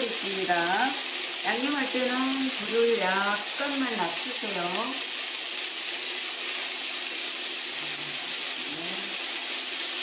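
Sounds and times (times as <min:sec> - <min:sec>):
meat and vegetables sizzling in pan: 0:00.0 - 0:10.0
short high cooktop beeps: 0:05.4 - 0:06.3.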